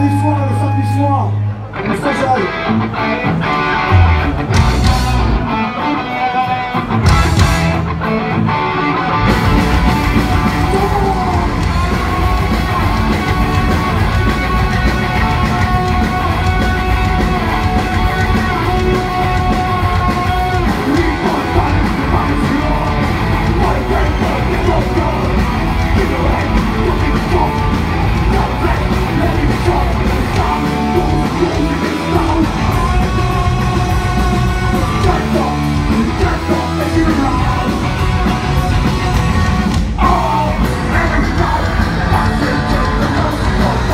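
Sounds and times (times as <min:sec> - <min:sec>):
bass: 0:00.0 - 0:43.9
drums: 0:00.0 - 0:43.9
distorted electric guitars: 0:01.3 - 0:43.9
shouted singing: 0:10.1 - 0:43.9.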